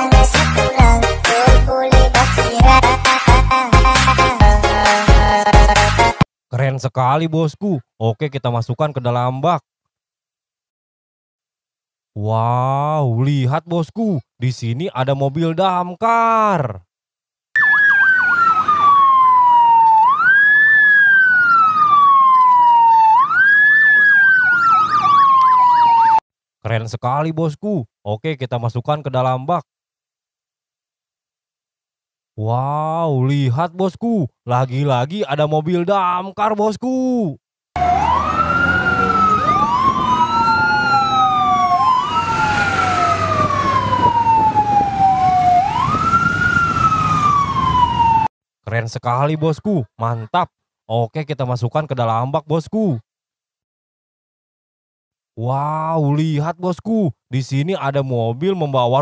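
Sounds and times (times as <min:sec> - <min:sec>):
fire engine siren wail: 0:17.6 - 0:26.2, 0:37.8 - 0:48.3
siren yelp warbling: 0:17.6 - 0:26.2, 0:37.8 - 0:48.3.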